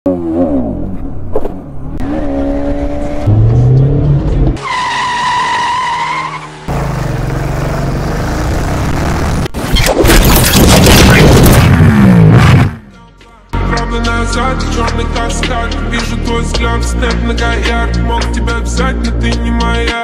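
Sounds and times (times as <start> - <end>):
motorcycle engines revving: 6.3 - 9.5.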